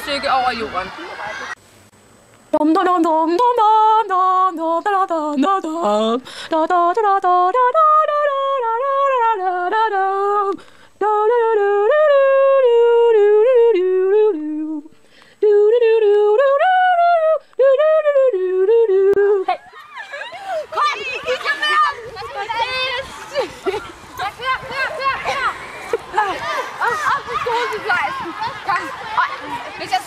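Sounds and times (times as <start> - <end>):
person humming a tune: 11.7 - 19.6.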